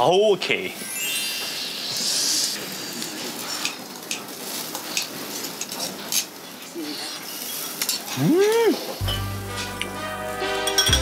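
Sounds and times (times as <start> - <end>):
meat sizzling on a grill: 0.0 - 10.9
chopsticks and dishes clinking: 7.8 - 8.2, 9.0 - 10.0, 10.6 - 11.0.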